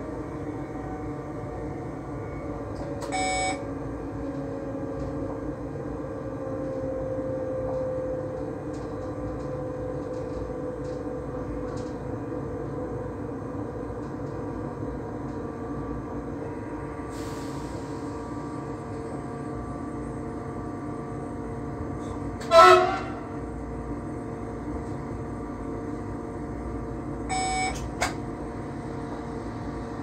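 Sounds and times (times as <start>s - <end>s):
train rumble with motor whine: 0.0s - 30.0s
short electronic beep: 3.1s - 3.6s, 27.3s - 27.8s.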